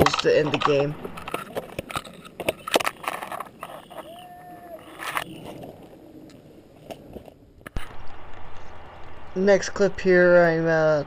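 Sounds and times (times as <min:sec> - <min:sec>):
gear knocking and clicking: 0:00.0 - 0:04.2
faint distant call: 0:03.6 - 0:05.7.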